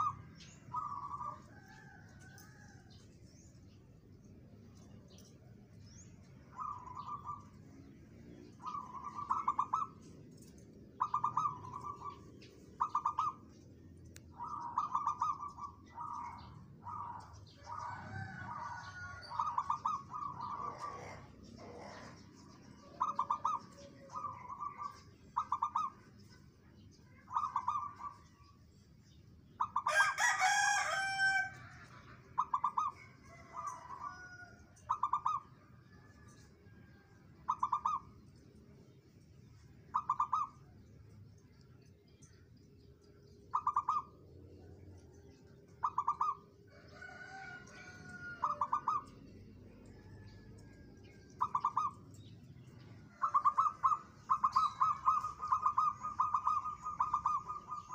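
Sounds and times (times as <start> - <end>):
dove cooing: 0.0 - 2.7, 8.6 - 13.5, 14.3 - 26.0, 27.1 - 28.4, 32.4 - 36.2, 37.0 - 38.2, 39.9 - 40.6, 43.5 - 44.2, 45.7 - 49.1, 51.4 - 52.0, 53.1 - 57.9.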